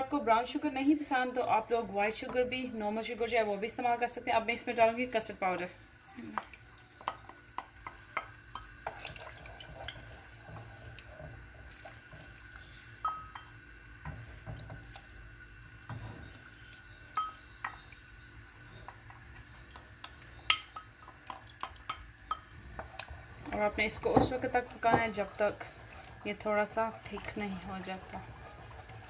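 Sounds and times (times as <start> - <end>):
spoon tapping pan: 6.4 - 9.0, 13.0 - 14.2, 17.1 - 17.8, 18.8 - 22.9
liquid pouring and dripping: 8.8 - 10.0.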